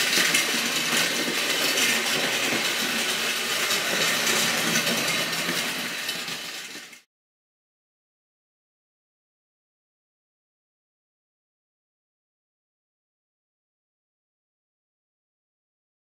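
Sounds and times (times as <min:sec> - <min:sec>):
toy train whirring on metal rails: 0:00.0 - 0:07.1.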